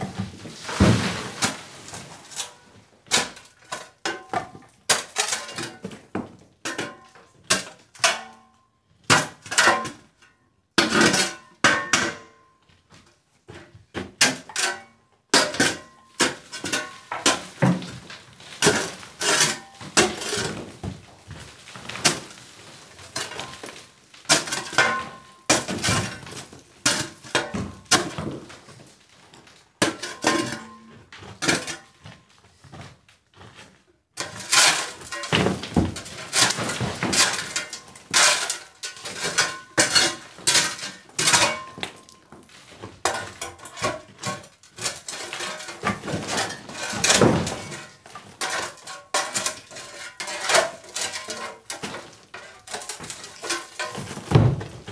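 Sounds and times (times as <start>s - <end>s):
shovel scraping into rubble: 0.1s - 4.0s, 15.4s - 29.0s, 33.4s - 54.9s
stone clattering onto rubble: 43.0s - 54.9s.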